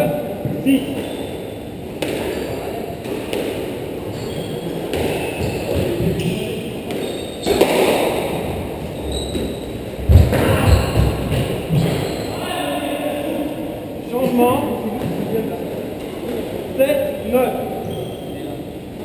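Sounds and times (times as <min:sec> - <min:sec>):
squash ball hits: 0:02.0 - 0:03.9, 0:04.9 - 0:08.6, 0:10.1 - 0:12.0.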